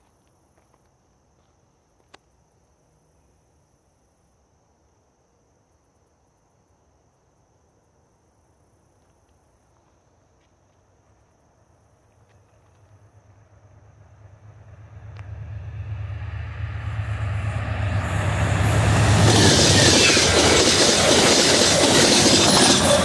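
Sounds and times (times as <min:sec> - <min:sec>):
crickets chirring: 0:00.0 - 0:23.0
approaching train rumble: 0:12.8 - 0:23.0.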